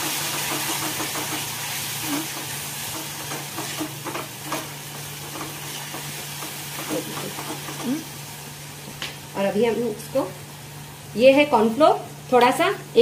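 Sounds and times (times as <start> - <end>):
spatula scraping and tapping pan: 0.0 - 8.0
sauce sizzling in a pan: 0.0 - 12.9.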